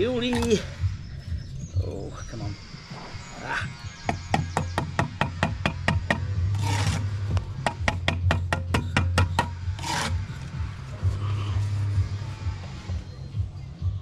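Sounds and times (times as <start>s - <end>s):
trowel scraping mortar: 5.9s - 8.0s, 8.7s - 12.7s
trowel tapping brick: 7.6s - 10.1s.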